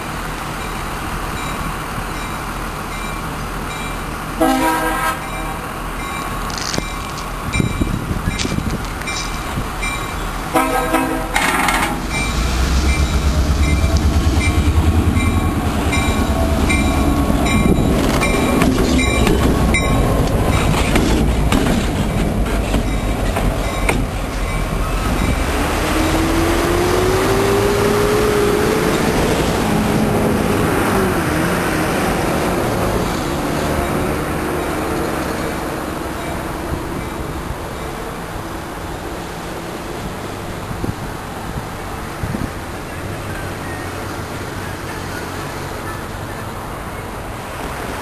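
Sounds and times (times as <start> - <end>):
diesel locomotive engine rumble: 0.0 - 48.0
train wheels on rails: 0.0 - 48.0
rising tone: 11.8 - 20.6.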